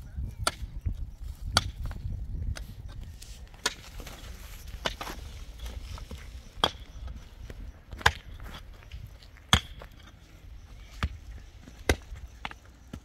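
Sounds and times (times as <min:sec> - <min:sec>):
pickaxe striking stony soil: 0:01.4 - 0:02.7, 0:03.5 - 0:06.9, 0:07.9 - 0:08.7, 0:09.5 - 0:10.1.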